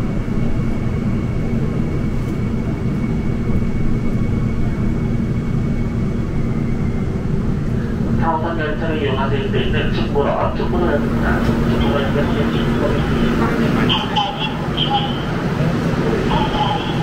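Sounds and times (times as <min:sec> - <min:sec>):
subway station rumble: 0:00.0 - 0:17.0.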